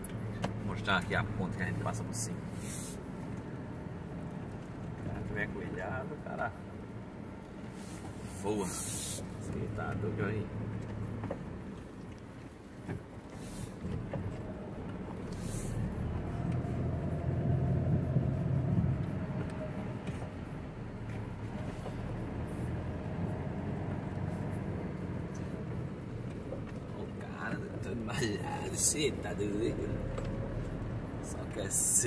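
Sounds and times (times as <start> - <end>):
short hisses: 2.5 - 3.0, 8.7 - 9.3.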